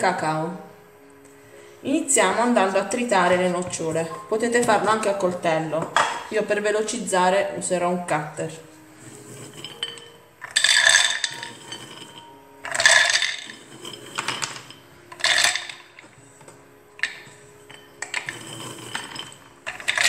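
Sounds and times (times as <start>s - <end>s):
nuts rattling into plastic bowl: 10.4s - 16.0s, 18.0s - 20.0s.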